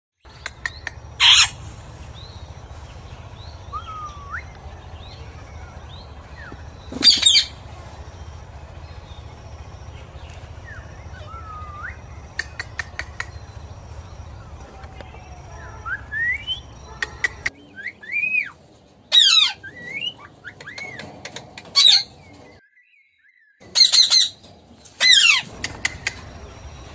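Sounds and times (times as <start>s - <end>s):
sharp clicks: 0.3s - 1.0s, 12.3s - 13.5s, 25.4s - 26.3s
rising chirps: 0.3s - 18.6s
parakeet screeches: 1.2s - 1.6s.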